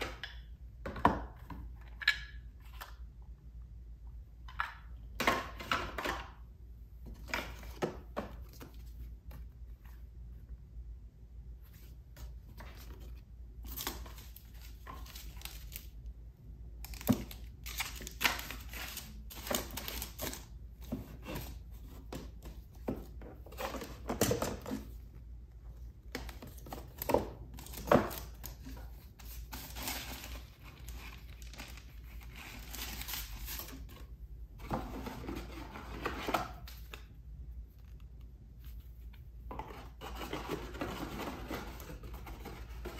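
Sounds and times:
paper and plastic sleeves rustling: 26.2 - 37.0.

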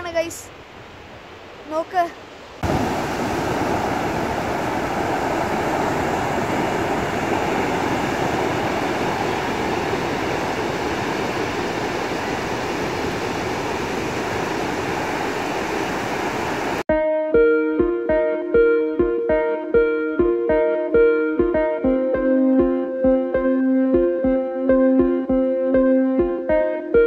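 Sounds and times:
ocean surf breaking: 0.0 - 16.9.

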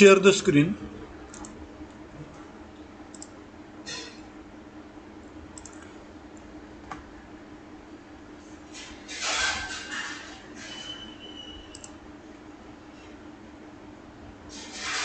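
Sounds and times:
faint steady hum: 0.0 - 9.0, 9.9 - 15.0
computer mouse clicks: 1.3 - 1.6, 3.1 - 3.3, 5.6 - 5.9, 11.7 - 12.0.

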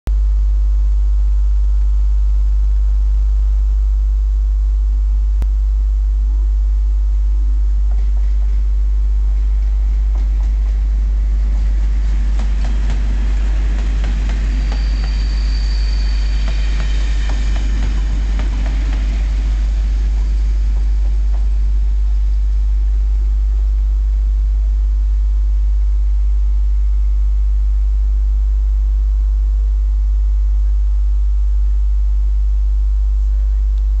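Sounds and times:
high whine: 0.1 - 34.0
low rumble: 0.1 - 34.0
diesel locomotive passing slowly: 7.8 - 23.8
wheels clicking over rails: 7.9 - 22.2.

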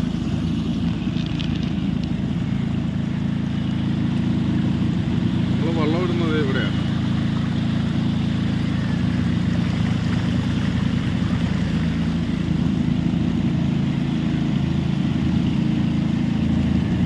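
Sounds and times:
boat engine running: 0.0 - 17.0.

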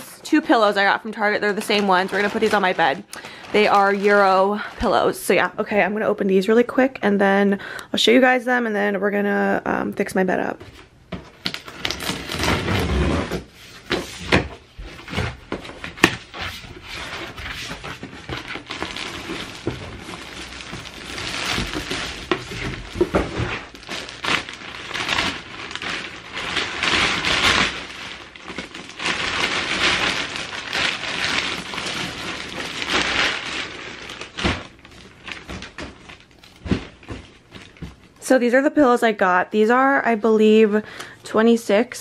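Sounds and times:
plastic tearing and crinkling: 0.4 - 5.1, 11.3 - 38.2.

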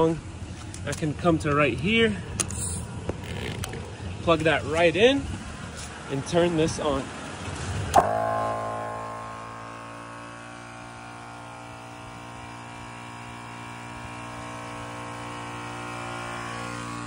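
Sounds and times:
air compressor droning: 8.0 - 17.0.

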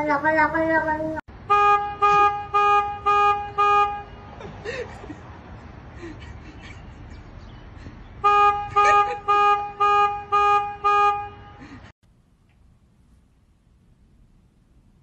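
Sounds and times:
low street noise: 0.0 - 15.0
car horn honking: 1.4 - 4.4, 8.2 - 11.9.

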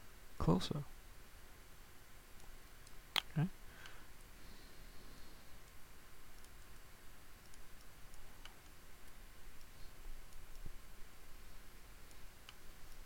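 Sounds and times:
low steady hiss: 0.0 - 13.0
computer mouse clicks: 5.6 - 10.7, 12.0 - 13.0.

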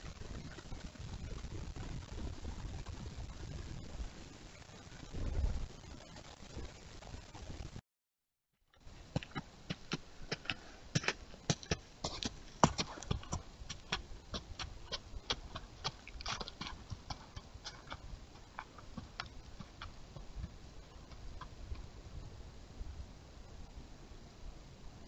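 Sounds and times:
deer hooves clicking on dry ground: 8.8 - 21.9.

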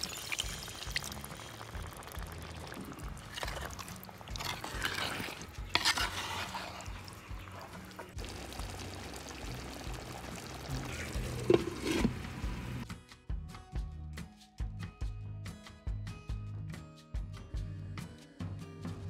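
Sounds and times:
spoon stirring curry in pot: 1.9 - 12.8.

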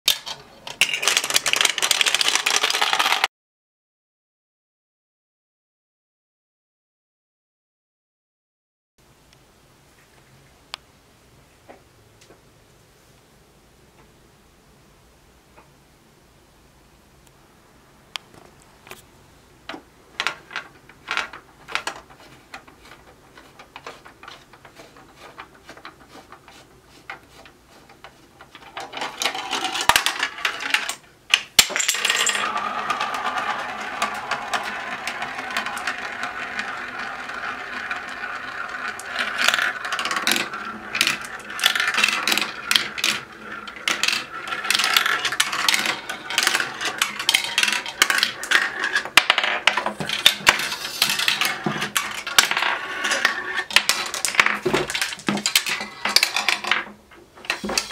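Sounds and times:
marbles rolling through plastic tracks: 0.1 - 3.3, 19.7 - 57.9
marbles clicking: 0.2 - 3.3, 31.6 - 56.8.

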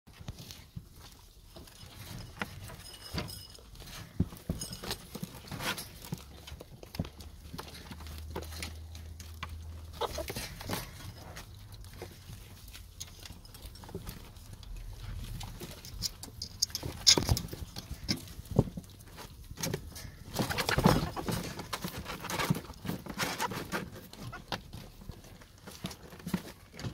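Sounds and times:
ferrets crunching and chewing: 0.1 - 26.9
rustling of feathers and bedding: 0.1 - 26.9.

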